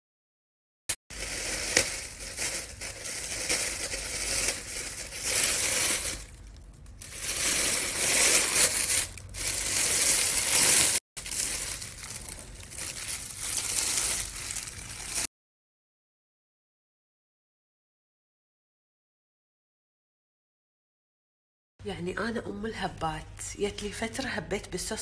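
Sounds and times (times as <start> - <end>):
plastic bags crinkling: 1.1 - 15.3.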